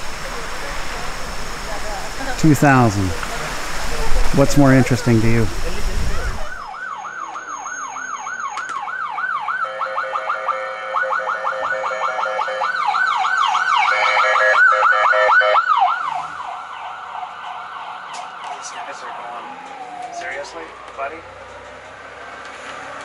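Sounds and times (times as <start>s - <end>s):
ambulance siren yelping: 4.0s - 21.4s.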